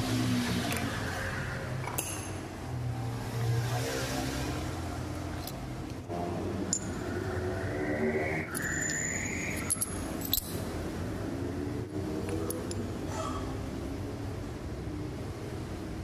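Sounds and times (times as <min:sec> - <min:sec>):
steady workshop hum: 0:00.0 - 0:16.0
metallic clinks and scrapes: 0:06.7 - 0:07.0, 0:08.5 - 0:10.8.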